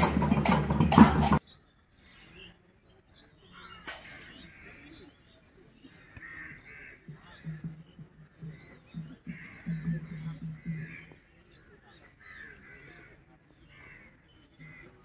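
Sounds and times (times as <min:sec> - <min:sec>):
loud sound cutting off: 0:00.0 - 0:01.4
distant voices and calls: 0:00.0 - 0:15.0
open-air ambience: 0:00.0 - 0:15.0.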